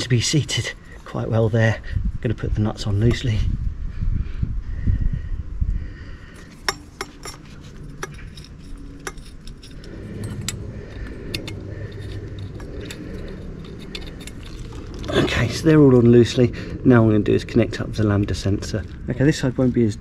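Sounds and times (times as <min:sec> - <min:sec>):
small metal nuts clinking: 0:06.4 - 0:15.2.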